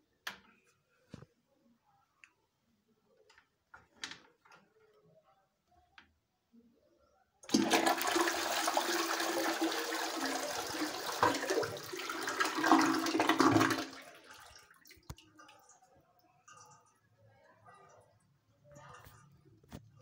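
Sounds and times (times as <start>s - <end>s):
toilet flushing: 7.4s - 15.2s.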